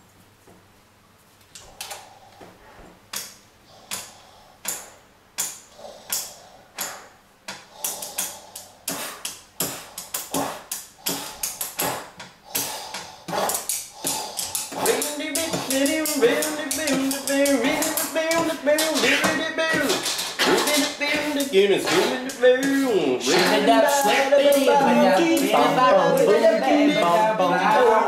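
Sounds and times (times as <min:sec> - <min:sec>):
people making percussive clicks: 0:03.1 - 0:28.0.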